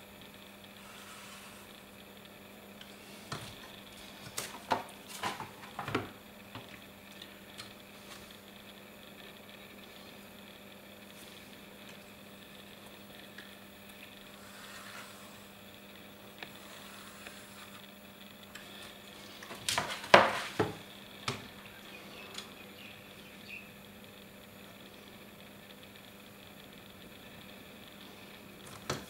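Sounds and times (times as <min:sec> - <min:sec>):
pencil scratching along ruler: 0:00.8 - 0:01.7, 0:14.4 - 0:15.4, 0:16.5 - 0:17.8.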